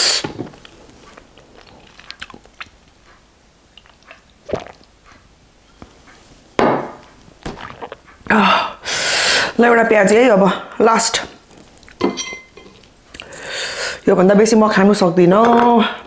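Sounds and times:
sipping and swallowing: 0:00.6 - 0:03.0, 0:03.7 - 0:05.0, 0:07.4 - 0:08.2, 0:12.6 - 0:13.5.

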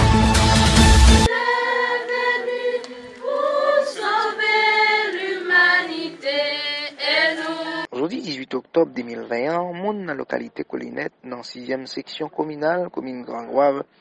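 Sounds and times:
instrumental intro music: 0:00.0 - 0:04.8
women's choir singing a hymn: 0:01.2 - 0:07.9.

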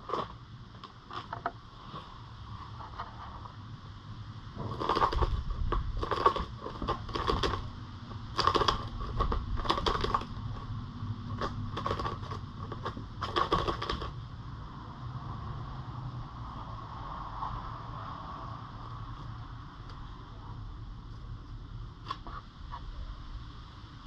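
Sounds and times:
rabbit paws scraping cardboard: 0:00.0 - 0:03.6, 0:04.6 - 0:14.2.

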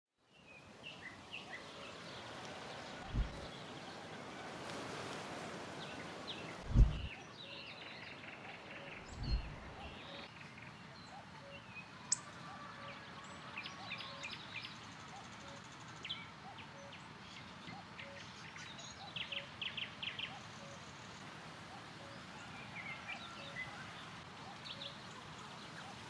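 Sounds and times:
small birds chirping: 0:00.3 - 0:03.9, 0:05.8 - 0:12.3
wind rustling: 0:00.6 - 0:10.3
wind buffeting microphone: 0:03.0 - 0:03.5, 0:06.6 - 0:07.1, 0:09.0 - 0:10.0.

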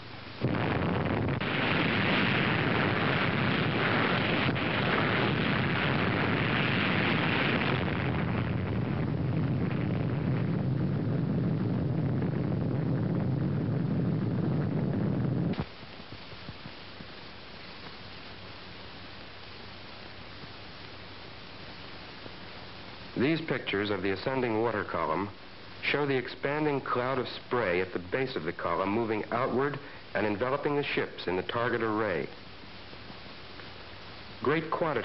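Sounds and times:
faint film hiss: 0:00.0 - 0:35.0
explosion rumble: 0:00.4 - 0:15.7.

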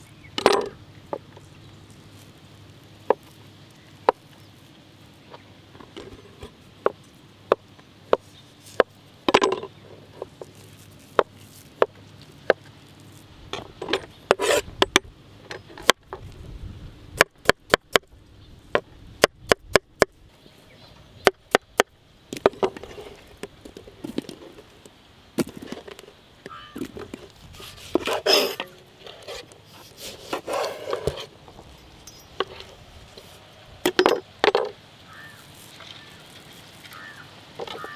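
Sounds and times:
fruit rustling and squishing: 0:00.0 - 0:14.7, 0:22.3 - 0:34.4, 0:35.0 - 0:37.9.

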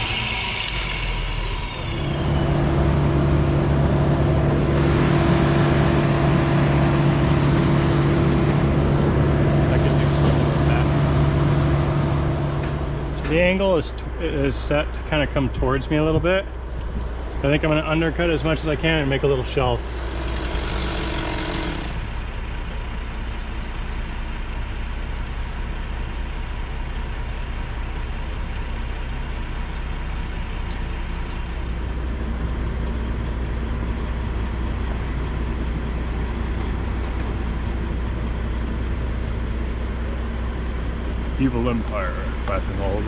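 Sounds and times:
loud rush of noise: 0:00.0 - 0:13.2
diesel engine droning: 0:00.0 - 0:43.0.

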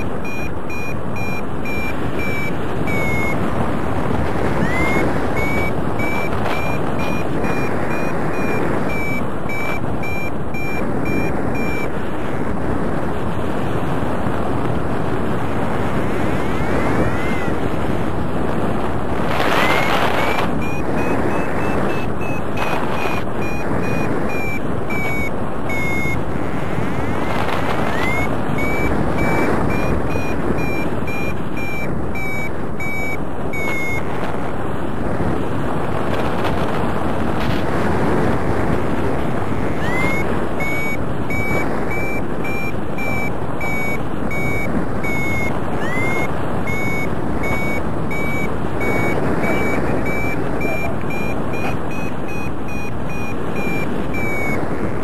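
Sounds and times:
variometer beeping: 0:00.0 - 0:12.0, 0:16.3 - 0:17.7, 0:19.4 - 0:34.2, 0:39.5 - 0:54.8
wind rush on microphone: 0:00.0 - 0:55.0.

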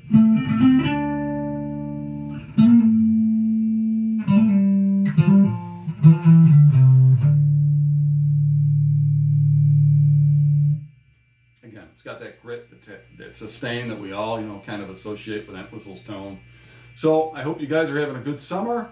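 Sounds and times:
electric bass notes: 0:00.0 - 0:11.6.

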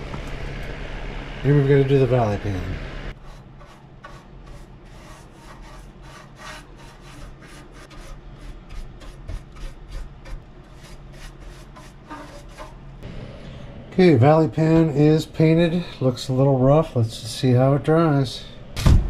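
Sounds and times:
paintbrush scrubbing on metal: 0:03.2 - 0:13.0.

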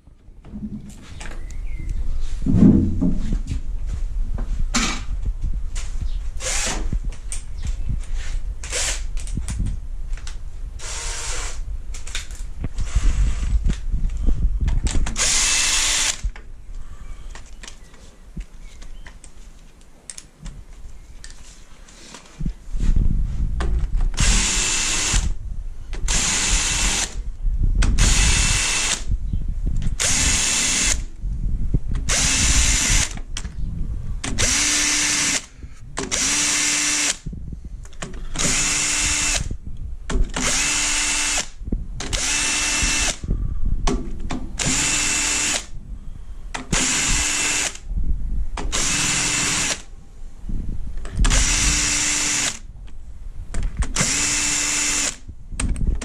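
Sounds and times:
cordless drill whirring: 0:06.4 - 0:06.8, 0:08.6 - 0:09.3, 0:10.8 - 0:12.2, 0:15.0 - 0:16.3, 0:24.1 - 0:25.4, 0:26.1 - 0:27.2, 0:28.0 - 0:29.1, 0:30.0 - 0:31.1, 0:32.0 - 0:33.2, 0:34.3 - 0:37.3, 0:38.2 - 0:39.5, 0:40.3 - 0:43.2, 0:44.6 - 0:45.7, 0:46.7 - 0:47.8, 0:48.7 - 0:49.9, 0:51.3 - 0:52.7, 0:54.0 - 0:55.2.

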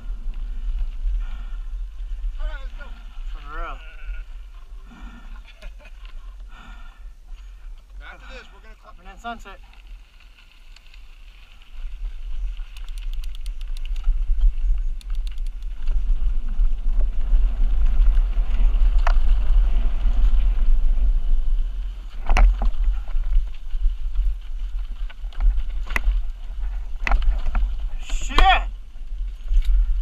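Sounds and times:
wind buffeting microphone: 0:11.3 - 0:30.0.

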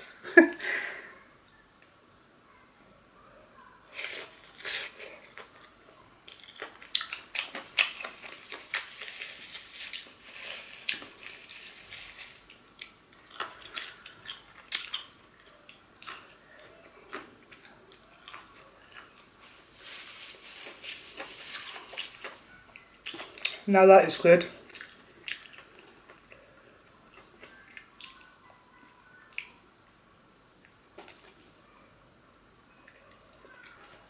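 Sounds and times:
chewing crispy fried chicken: 0:03.8 - 0:23.7, 0:24.6 - 0:30.0, 0:30.6 - 0:31.6, 0:32.4 - 0:34.0.

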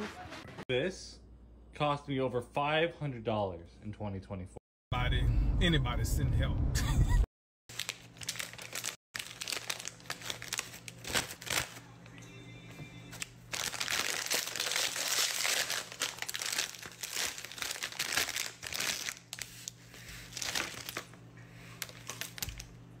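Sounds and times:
chip bag crinkling: 0:07.7 - 0:11.8, 0:13.2 - 0:22.9.

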